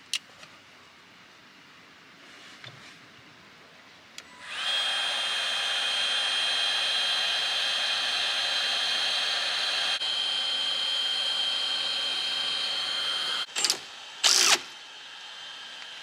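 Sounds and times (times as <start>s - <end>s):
heat gun blowing with high whine: 4.2s - 16.0s.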